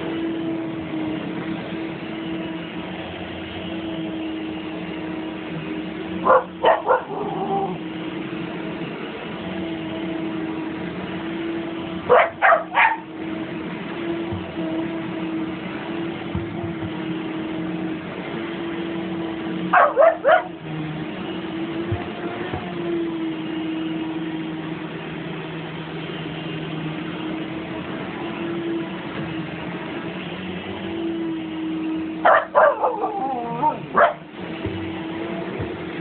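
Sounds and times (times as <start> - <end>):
vacuum cleaner running: 0.0 - 36.0
dog yipping: 6.2 - 7.8, 12.1 - 13.1, 19.7 - 20.6, 32.2 - 34.3
dog howling: 6.2 - 7.9, 12.1 - 13.1, 19.8 - 20.6, 32.2 - 34.3.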